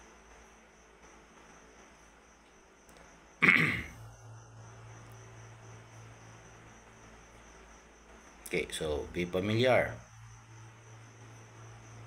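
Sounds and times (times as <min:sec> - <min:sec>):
crickets chirping: 0:00.0 - 0:12.0
low steady hum: 0:00.0 - 0:12.0
person coughing: 0:03.4 - 0:04.0.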